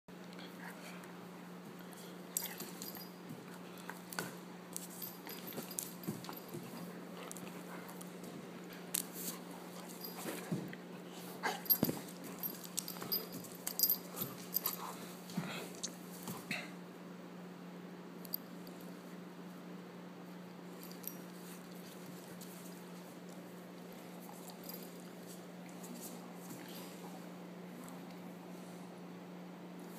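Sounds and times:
dog play-biting noises: 2.4 - 16.6.

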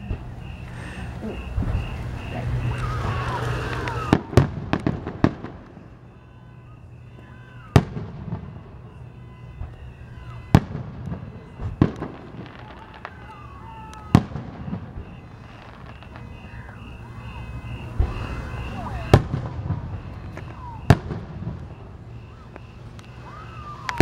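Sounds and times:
fireworks bursting: 0.0 - 24.0.

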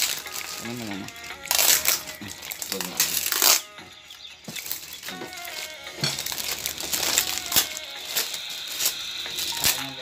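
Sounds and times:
faint background music: 0.0 - 10.0
plastic crinkling: 0.0 - 10.0
cutlery clinking on plates: 6.0 - 6.4.

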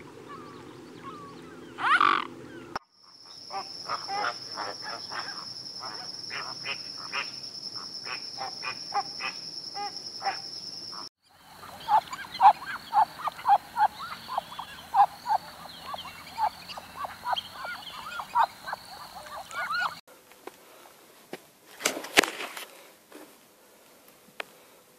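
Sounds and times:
ducks quacking: 0.0 - 10.4, 11.4 - 20.0
flamingos honking: 0.0 - 20.0.

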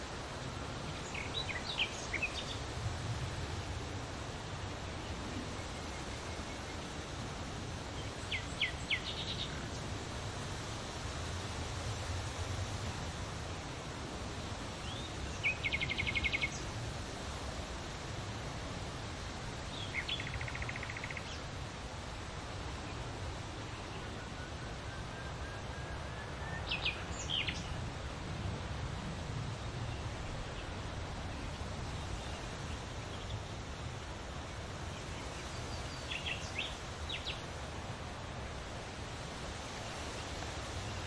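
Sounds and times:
wind rustling leaves: 0.0 - 41.0
small birds chirping: 0.9 - 2.7, 14.8 - 16.8, 19.6 - 21.6, 26.4 - 27.8, 34.8 - 37.5.

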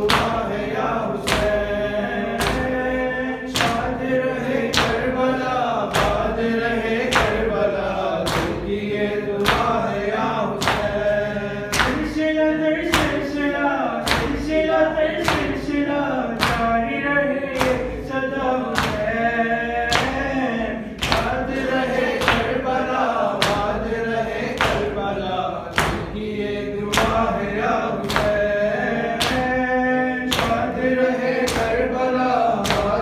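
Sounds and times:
men chanting a lament: 0.0 - 33.0
man singing into a microphone: 10.8 - 21.4.

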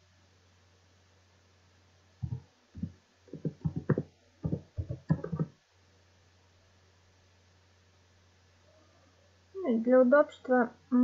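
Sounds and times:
faint low hum: 0.0 - 11.0
computer keyboard typing: 2.2 - 5.5.

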